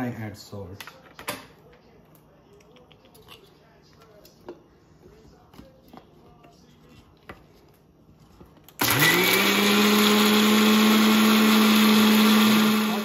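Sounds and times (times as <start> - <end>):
mixer grinder motor whining: 8.8 - 13.0.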